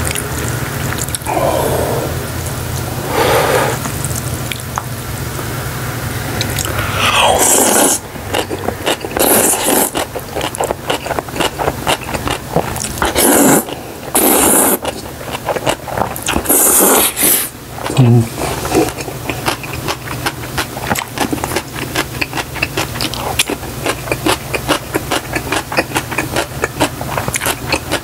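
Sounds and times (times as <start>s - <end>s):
wet chewing and mouth clicks: 0.0s - 1.3s, 6.4s - 6.8s, 7.5s - 28.0s
loud noodle slurping: 1.0s - 2.4s, 3.0s - 4.0s, 6.6s - 20.2s.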